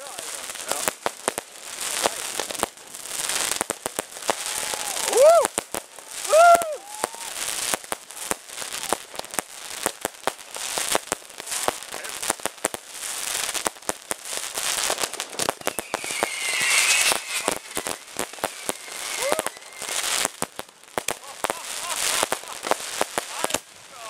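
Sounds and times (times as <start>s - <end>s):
crackling hiss: 0.0s - 24.0s
fireworks cracking and popping: 0.0s - 24.0s
falling whistling tone: 15.5s - 20.4s.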